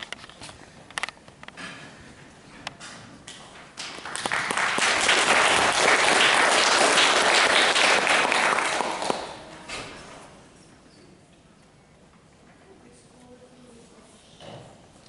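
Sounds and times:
audience applauding: 3.8s - 9.7s.

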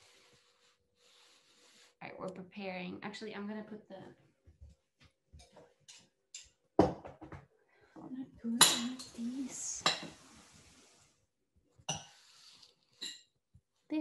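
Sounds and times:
knife clinking on china plates: 8.6s - 9.2s.

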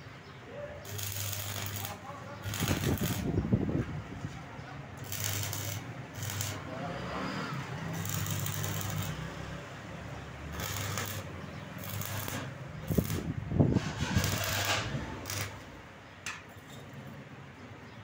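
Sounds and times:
welding arc crackling: 0.8s - 3.4s, 5.0s - 6.7s, 7.9s - 9.3s, 10.5s - 15.8s.

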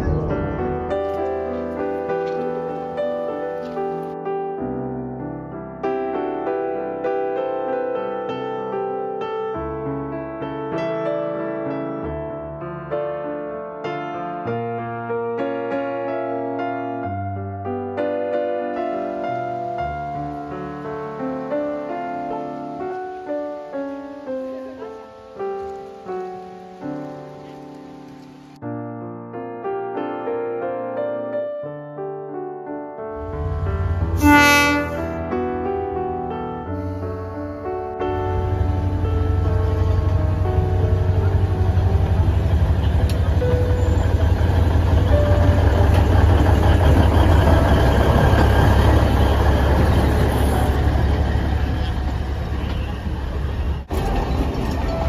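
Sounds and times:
diesel locomotive engine rumble: 0.0s - 4.2s, 33.1s - 55.0s
train cars rolling by: 0.0s - 4.2s, 33.2s - 55.0s
slow piano melody: 0.0s - 55.0s.

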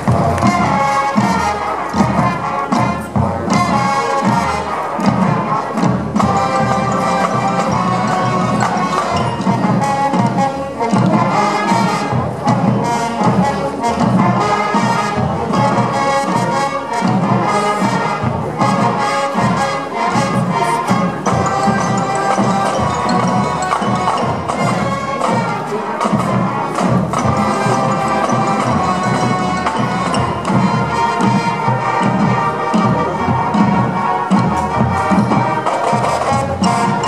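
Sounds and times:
marching band playing: 0.0s - 37.0s
percussion hits: 0.0s - 37.0s.

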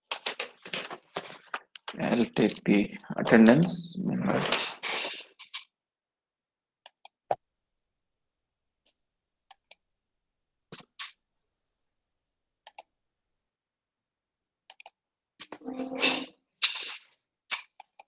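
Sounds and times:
computer mouse clicking: 12.6s - 12.9s, 14.7s - 15.0s, 17.6s - 18.0s.

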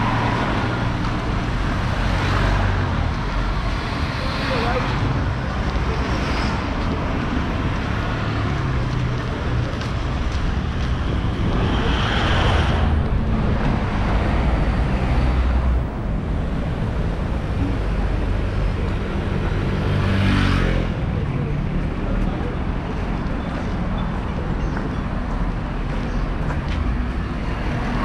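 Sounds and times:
street traffic: 0.0s - 28.0s
vehicle passing close: 10.9s - 15.9s.

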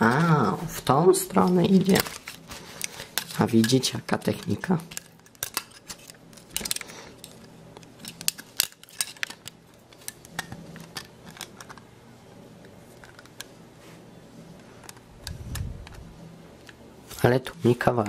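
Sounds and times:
plastic parts clicking: 1.8s - 11.9s.

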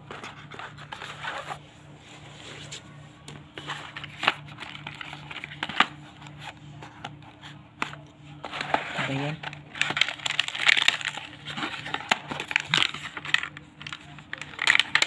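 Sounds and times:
cardboard box rustling and scraping: 0.0s - 6.6s, 8.4s - 13.3s.

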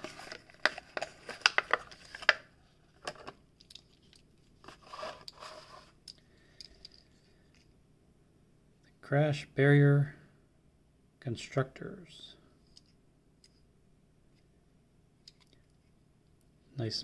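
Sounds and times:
plastic packaging crackling: 0.0s - 5.6s.

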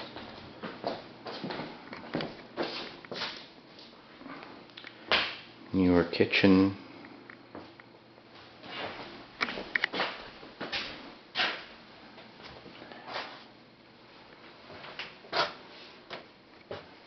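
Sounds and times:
footsteps on hard floor: 0.0s - 3.9s.

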